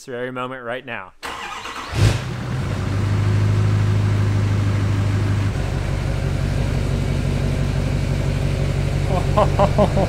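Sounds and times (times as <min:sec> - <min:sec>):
diesel engine idling: 0:02.2 - 0:10.0.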